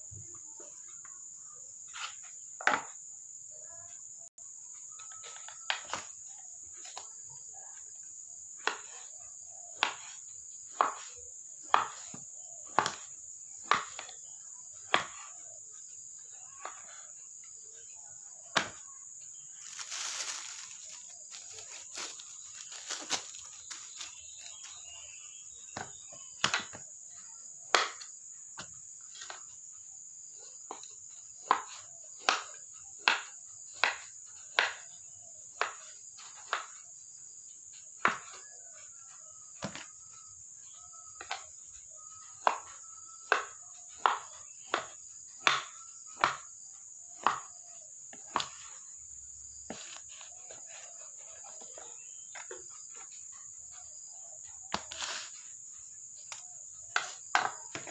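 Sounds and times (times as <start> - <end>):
knife chopping on wooden board: 14.8 - 15.4, 18.5 - 18.8, 30.7 - 34.9, 38.0 - 38.5, 39.6 - 39.9, 41.2 - 41.4, 42.4 - 46.5.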